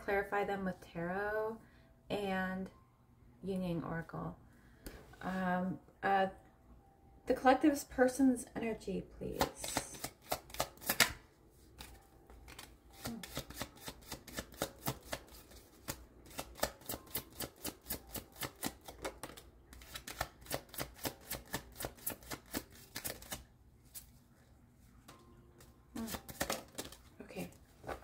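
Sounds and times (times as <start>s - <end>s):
cards being shuffled by hand: 9.4s - 11.2s, 11.8s - 24.2s, 25.1s - 28.0s.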